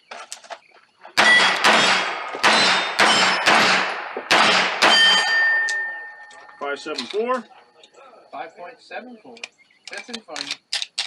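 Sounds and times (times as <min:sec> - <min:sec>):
pistol shots: 0:01.2 - 0:05.9
steel plate ringing clang: 0:01.2 - 0:07.0.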